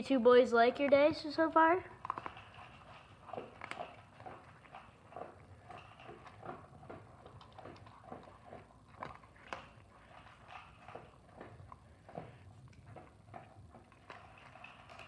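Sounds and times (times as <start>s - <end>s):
dog crunching kibble: 0.1s - 15.0s.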